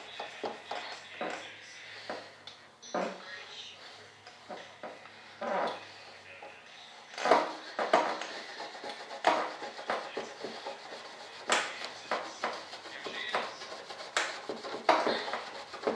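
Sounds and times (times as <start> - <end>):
scraping across a mold: 7.2 - 15.9.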